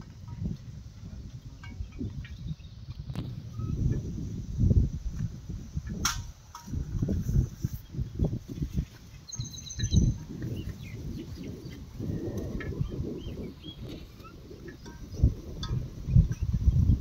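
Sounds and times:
wind buffeting microphone: 0:00.0 - 0:17.0
birds chirping: 0:01.4 - 0:04.0, 0:07.7 - 0:17.0.

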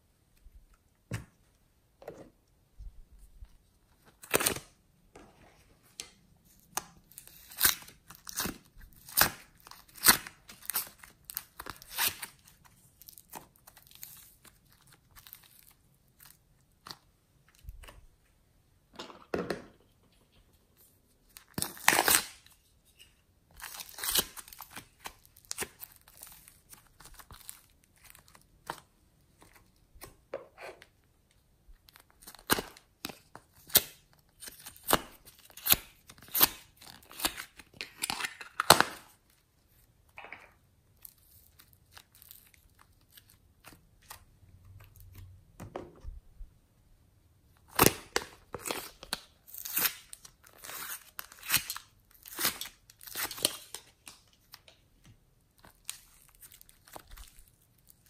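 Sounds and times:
foam clay tearing by hand: 0:06.5 - 0:16.3, 0:21.4 - 0:22.6, 0:23.5 - 0:28.8, 0:31.9 - 0:39.2, 0:47.7 - 0:54.1.

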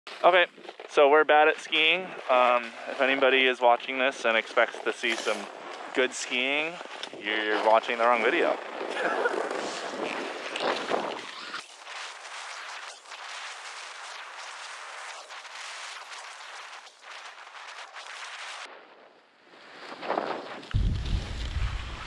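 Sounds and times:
skis hissing over snow: 0:00.1 - 0:18.7, 0:19.6 - 0:22.0
ski edge scrapes: 0:01.8 - 0:03.5, 0:04.3 - 0:18.7.

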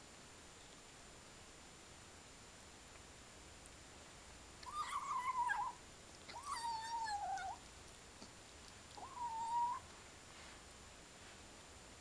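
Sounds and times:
kitten meowing: 0:04.6 - 0:07.6, 0:08.9 - 0:09.9.

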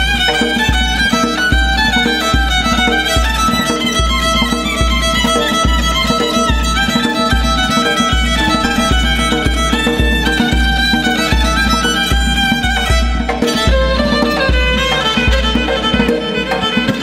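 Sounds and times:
hand drum bass strokes: 0:00.0 - 0:17.0
plucked strings: 0:00.0 - 0:17.0
violin melody: 0:00.0 - 0:17.0.

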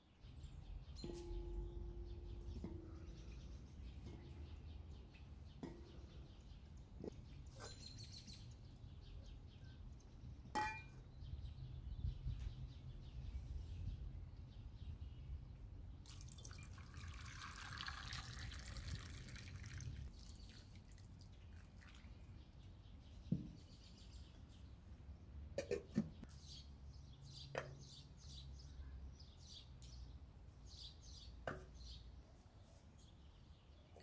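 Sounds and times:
water pouring and splashing: 0:16.1 - 0:22.3.

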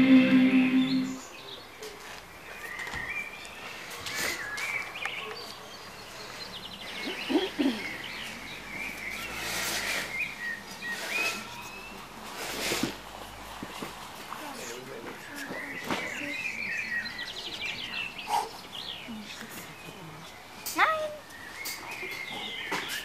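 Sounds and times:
birds chirping and singing: 0:00.0 - 0:01.7, 0:15.2 - 0:23.0
rustles and knocks on a mat: 0:13.6 - 0:14.4.

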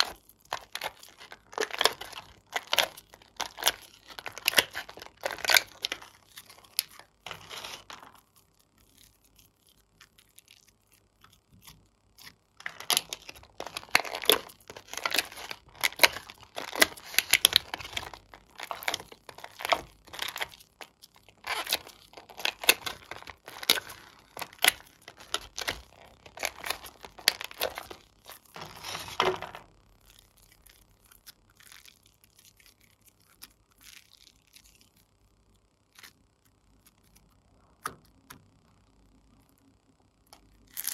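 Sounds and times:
plastic tray crinkling: 0:00.0 - 0:29.7.

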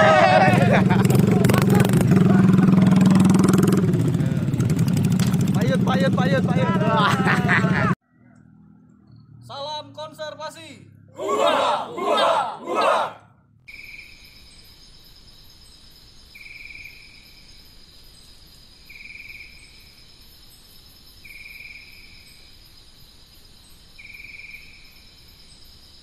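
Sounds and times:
insect short chirp: 0:13.7 - 0:26.0
insects trilling: 0:13.7 - 0:26.0.

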